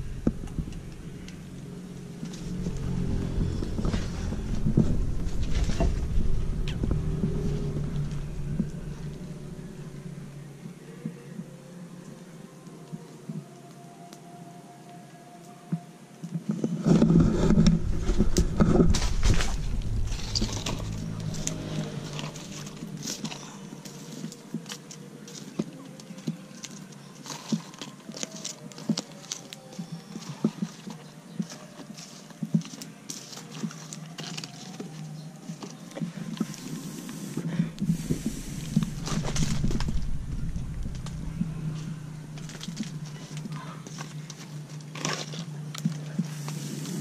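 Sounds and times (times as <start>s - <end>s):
low rumble: 0.0s - 10.9s, 16.9s - 23.8s, 36.5s - 44.9s.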